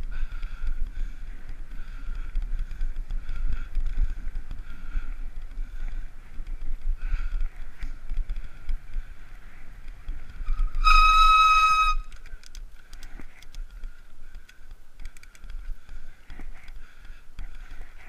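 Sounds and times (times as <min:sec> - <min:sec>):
coasting bike whine and ticking: 0:00.0 - 0:18.0
high-pitched bicycle warning tone: 0:10.5 - 0:12.1.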